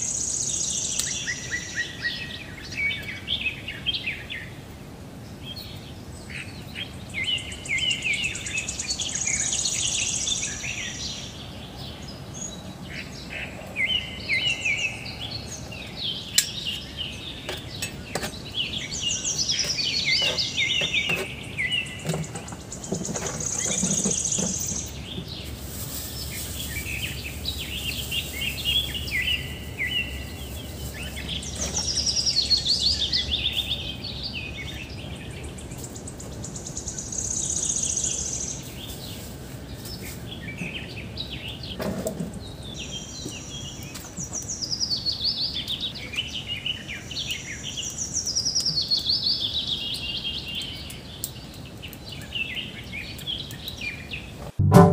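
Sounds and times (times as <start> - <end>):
songbird chirping: 0.0 - 54.9
sharp knock: 54.5 - 54.9.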